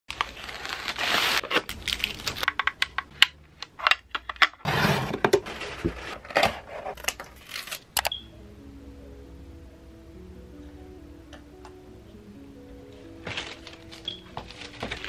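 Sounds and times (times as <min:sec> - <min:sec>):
plastic packaging crinkling: 0:00.1 - 0:03.0, 0:13.2 - 0:15.0.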